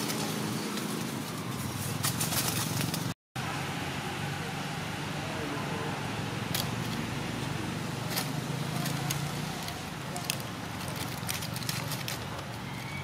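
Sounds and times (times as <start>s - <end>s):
dry leaves crackling and rustling: 0.0s - 3.2s, 6.4s - 13.0s.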